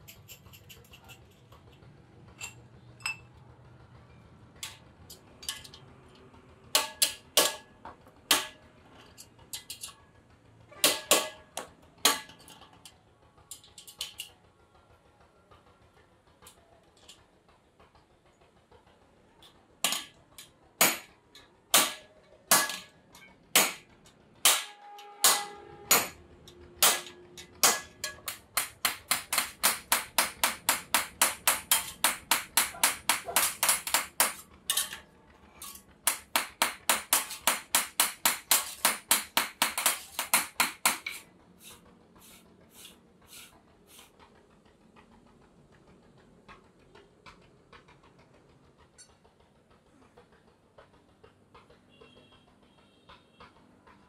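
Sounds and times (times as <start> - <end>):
hammer striking metal: 6.7 - 9.9, 10.8 - 12.6, 19.8 - 44.1.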